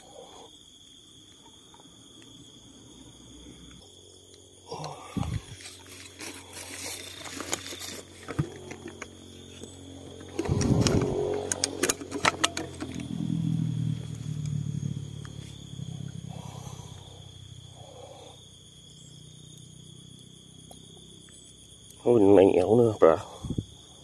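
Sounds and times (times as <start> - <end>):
crickets chirping: 0.0 - 24.0
low hum: 2.1 - 19.6
hands handling fishing gear: 5.2 - 9.2.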